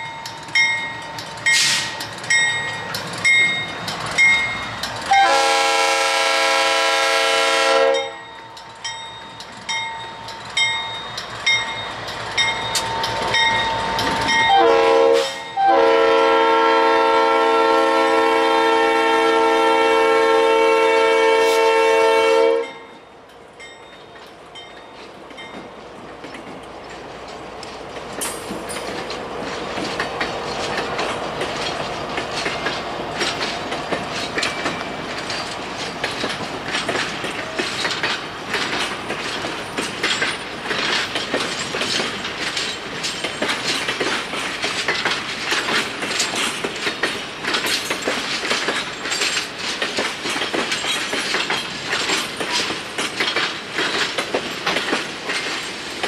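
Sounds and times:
train wheels clacking on rails: 0:00.0 - 0:56.0
locomotive air horn blasts: 0:05.1 - 0:08.2, 0:14.5 - 0:22.8.

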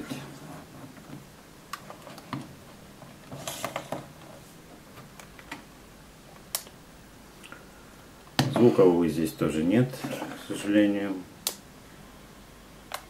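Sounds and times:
small switch clicks: 0:11.4 - 0:11.6.

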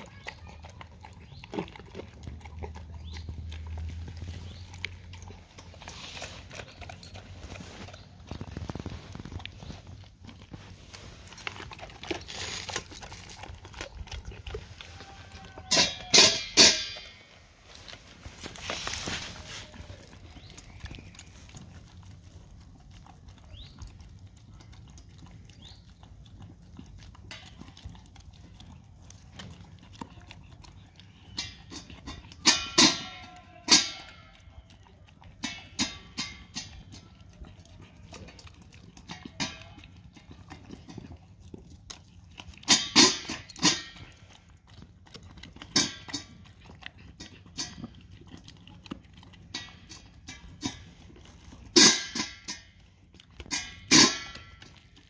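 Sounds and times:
dog chewing and lapping: 0:00.0 - 0:55.0
metal bowl clanking: 0:15.3 - 0:17.4, 0:31.3 - 0:34.3, 0:35.4 - 0:37.0, 0:42.6 - 0:44.2, 0:51.7 - 0:52.8, 0:53.4 - 0:54.8.

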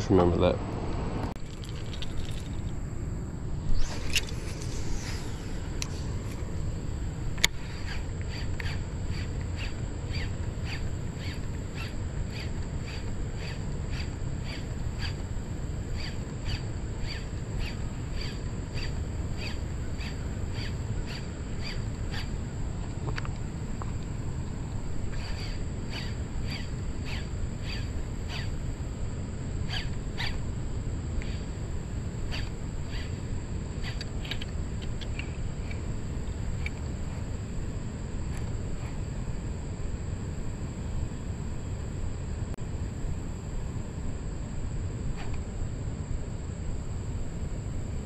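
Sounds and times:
high thin drone: 0:00.0 - 0:12.0
low steady rumble: 0:00.0 - 0:48.0
short sharp chirping calls: 0:07.6 - 0:15.2, 0:15.9 - 0:22.4, 0:25.1 - 0:28.6, 0:29.7 - 0:30.4, 0:32.3 - 0:33.2.

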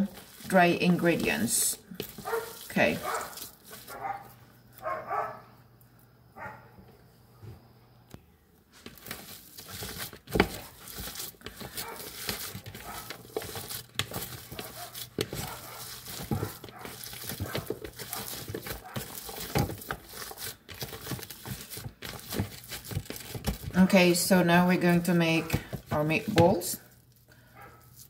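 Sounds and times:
plastic bowl rustling and knocking: 0:00.0 - 0:04.0, 0:08.8 - 0:26.8
hands squelching raw meat: 0:00.0 - 0:04.2, 0:09.0 - 0:23.7.

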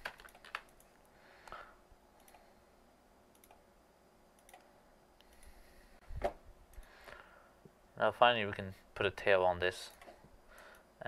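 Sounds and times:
computer mouse clicks: 0:00.0 - 0:01.6, 0:02.2 - 0:02.5, 0:03.3 - 0:03.7, 0:04.4 - 0:05.5.

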